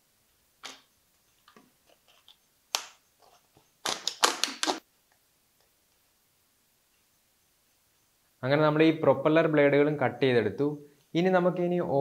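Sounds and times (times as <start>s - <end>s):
plastic crackling: 1.4s - 4.8s.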